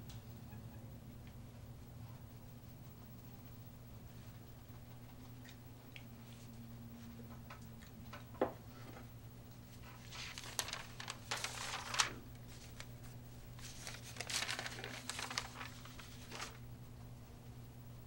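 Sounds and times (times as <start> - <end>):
newspaper rustling: 9.7 - 16.7
low hum: 10.4 - 18.0.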